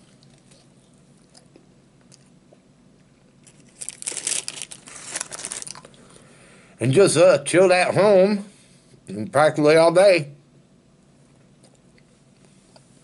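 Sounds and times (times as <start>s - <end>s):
faint chewing: 0.0s - 3.7s, 5.5s - 6.3s, 11.2s - 13.0s
paper bag crinkling: 3.4s - 6.0s.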